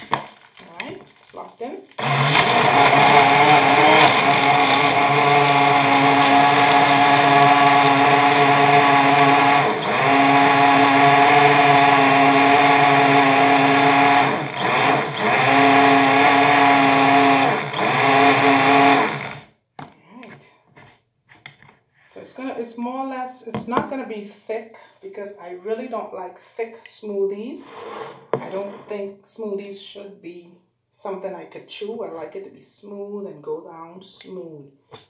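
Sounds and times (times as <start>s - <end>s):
blender motor running: 1.9s - 19.5s.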